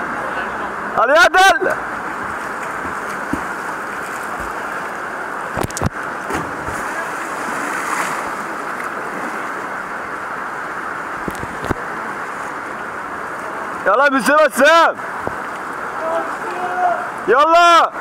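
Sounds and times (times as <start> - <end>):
river rushing over rocks: 0.0 - 18.0
water splashing: 1.6 - 13.9.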